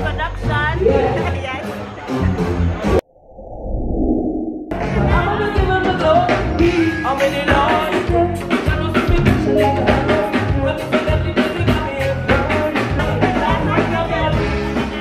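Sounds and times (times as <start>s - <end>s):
bass guitar: 4.7s - 15.0s
live band playing: 4.8s - 15.0s
person singing: 4.9s - 15.0s
drum kit beat: 7.4s - 15.0s.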